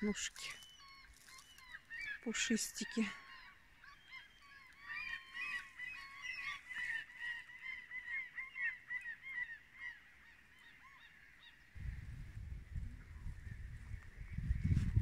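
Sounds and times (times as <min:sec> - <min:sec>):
flock of birds calling: 0:00.0 - 0:11.8.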